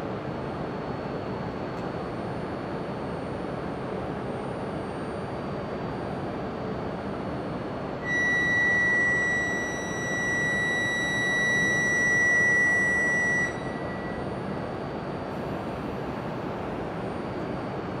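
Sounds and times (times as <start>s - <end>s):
electronic departure buzzer: 8.0s - 14.5s.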